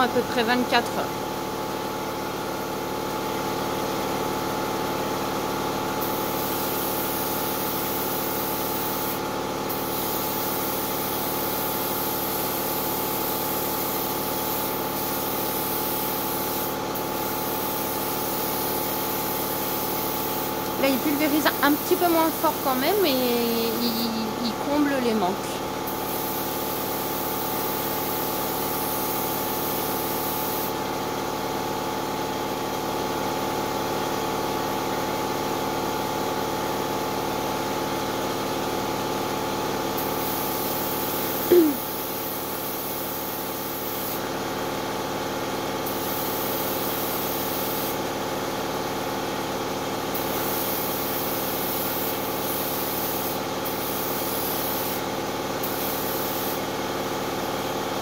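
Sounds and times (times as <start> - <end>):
air compressor running: 0.0 - 58.0
spray gun hissing: 6.0 - 22.9, 25.9 - 30.7, 40.0 - 44.2, 45.9 - 48.0, 50.1 - 56.7.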